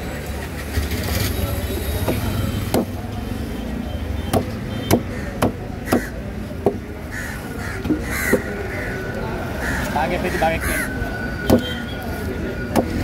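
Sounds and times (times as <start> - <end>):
outdoor market noise: 0.0 - 13.0
knife chopping on wooden block: 2.1 - 3.0, 4.3 - 6.8.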